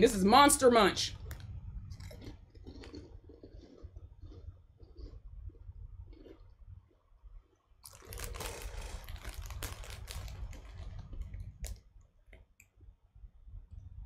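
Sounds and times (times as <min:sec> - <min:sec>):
crisp packet crinkling: 0:01.2 - 0:05.2, 0:07.8 - 0:11.9.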